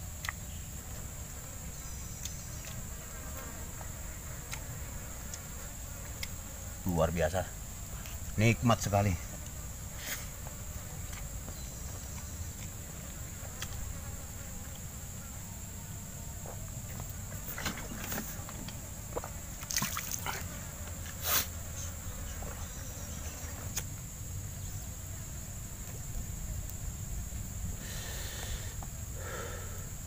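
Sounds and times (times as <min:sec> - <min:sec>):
high-pitched insect drone: 0:00.4 - 0:03.5, 0:21.0 - 0:30.0.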